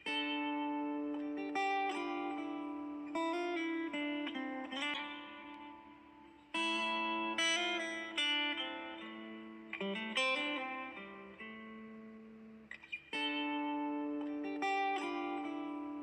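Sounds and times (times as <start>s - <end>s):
plucked guitar chords: 0.0s - 16.0s.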